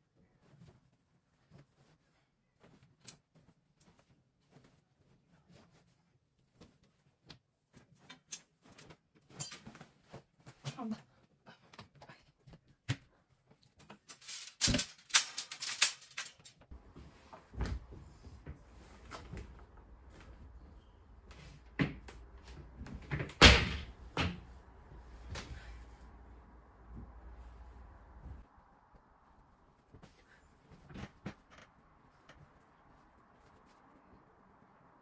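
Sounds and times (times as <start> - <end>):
clothes clattering off metal rack: 8.1 - 10.2, 13.9 - 16.7
faint low hum: 16.7 - 35.0
dull thumps of laundry: 16.8 - 20.7.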